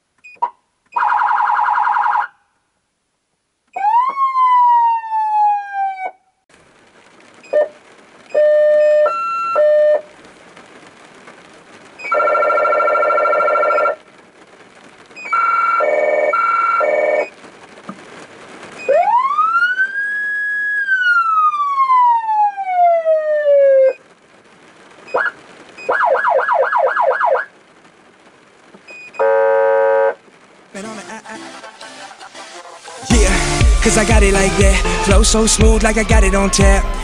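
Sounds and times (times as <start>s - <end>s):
siren wail: 3.8s - 6.2s, 8.4s - 10.0s, 18.9s - 24.0s, 25.9s - 27.5s.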